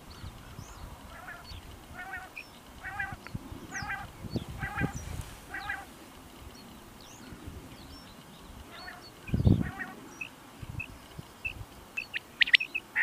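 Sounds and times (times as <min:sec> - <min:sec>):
quail calling: 0:01.1 - 0:06.0, 0:08.7 - 0:13.0
faint high bird chirps: 0:06.5 - 0:13.0.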